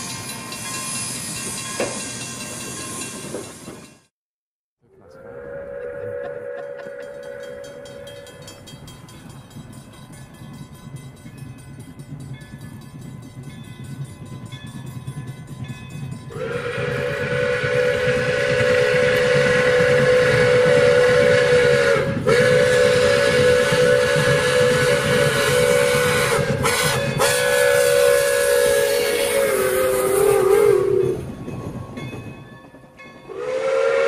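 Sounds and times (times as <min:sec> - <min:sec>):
train rumble: 0:00.0 - 0:04.1, 0:04.9 - 0:34.0
steam whistle blasts: 0:05.0 - 0:08.5, 0:16.3 - 0:31.2, 0:33.3 - 0:34.0.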